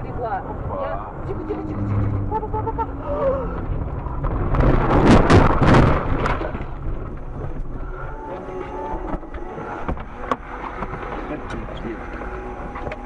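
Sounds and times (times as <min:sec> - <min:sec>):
low vehicle rumble: 0:00.0 - 0:13.0.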